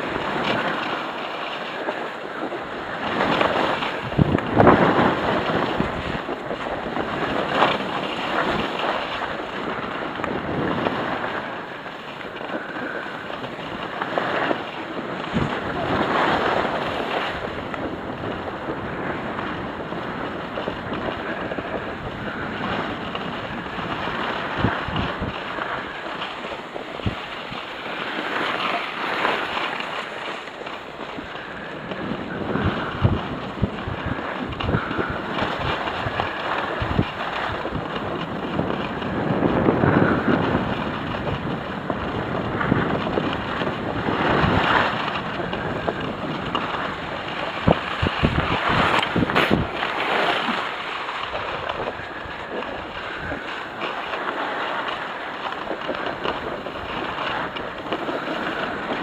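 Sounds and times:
skis scraping over snow: 0:00.0 - 0:59.0
wind rushing over microphone: 0:00.0 - 0:59.0.

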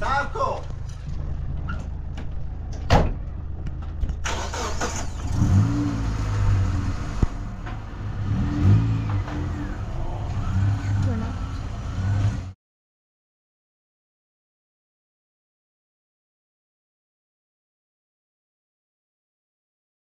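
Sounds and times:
truck engine idling and revving: 0:00.0 - 0:12.6.

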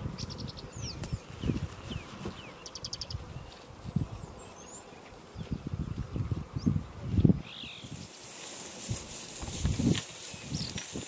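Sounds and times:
birds whistling: 0:07.4 - 0:08.1
soft low thumps and rustles: 0:08.4 - 0:11.0.

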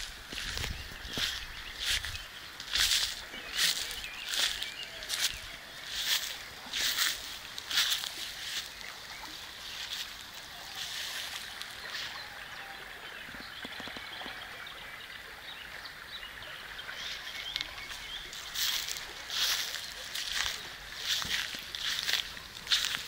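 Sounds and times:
footsteps through grass: 0:00.0 - 0:12.3, 0:17.5 - 0:23.0
creek flowing: 0:00.0 - 0:23.0.

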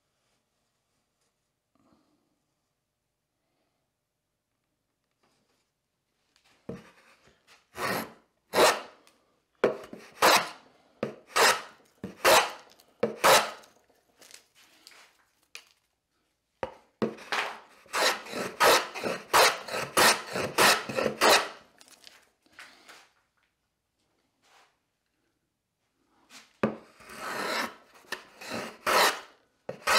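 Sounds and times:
hand tool scraping wood: 0:07.8 - 0:09.0, 0:09.7 - 0:13.8, 0:17.0 - 0:21.6, 0:26.7 - 0:29.9.

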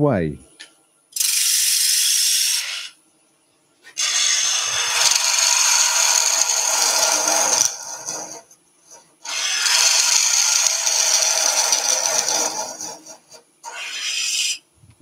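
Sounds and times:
gouge scraping spinning wood: 0:04.0 - 0:14.6.

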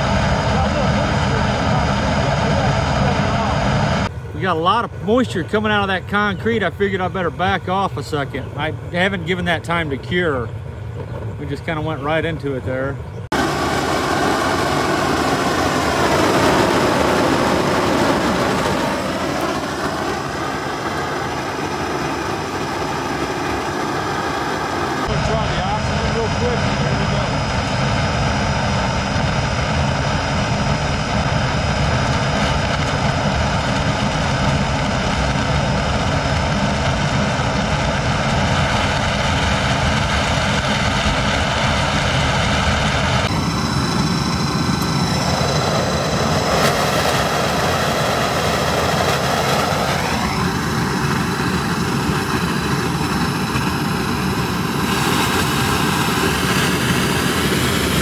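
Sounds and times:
burner roaring: 0:00.0 - 0:05.9, 0:13.3 - 0:58.0
pitch sweeping down and up: 0:13.3 - 0:58.0.

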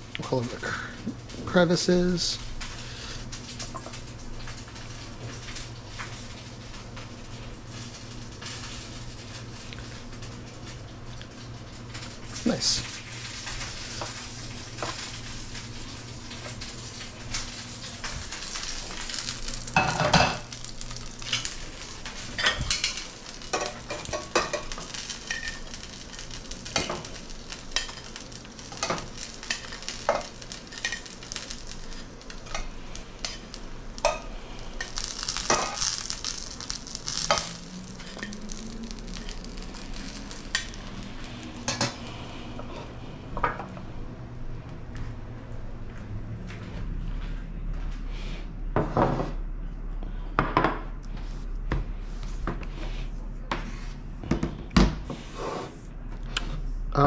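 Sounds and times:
dumplings sizzling in a pan: 0:00.0 - 0:42.9.

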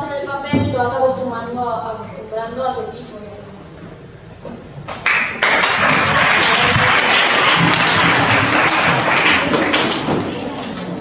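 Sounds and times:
audience applauding: 0:04.9 - 0:11.0.

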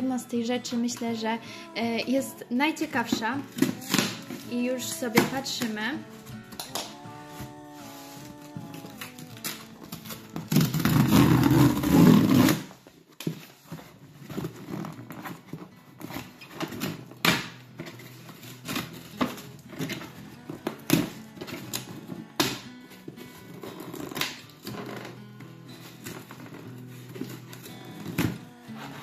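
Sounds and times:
cardboard tearing: 0:06.5 - 0:12.8
cardboard crackles and scrapes: 0:08.3 - 0:16.8.

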